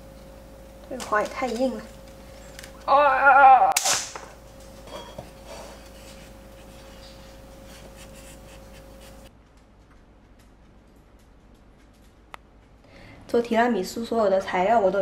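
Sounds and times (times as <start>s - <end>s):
rustling and scraping of stems: 4.6s - 9.3s.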